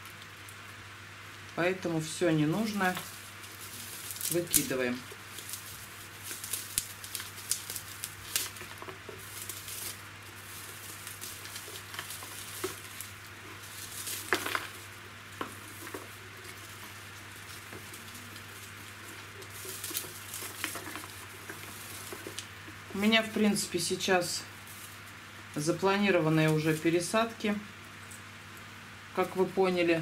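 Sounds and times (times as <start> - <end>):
bark and moss crackling: 0.0 - 30.0
rustle: 0.0 - 30.0.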